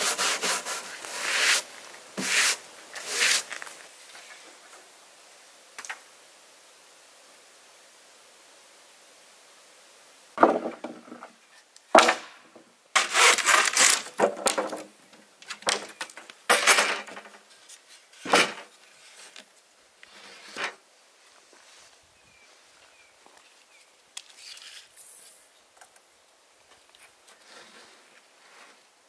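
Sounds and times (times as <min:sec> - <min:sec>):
handsaw cutting wood: 0:00.0 - 0:03.5, 0:13.0 - 0:13.9
wood knocks and scrapes: 0:10.4 - 0:17.4, 0:18.2 - 0:19.4.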